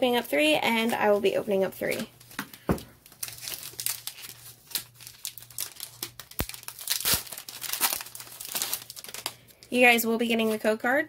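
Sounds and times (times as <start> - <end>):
foil wrapper crinkling and tearing: 3.0 - 9.8.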